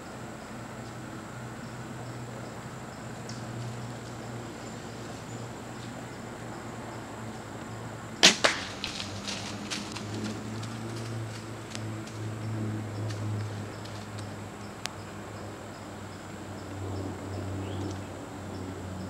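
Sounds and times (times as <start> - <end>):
bow string crack: 8.2 - 9.4
deer running through dry leaves: 8.2 - 12.4.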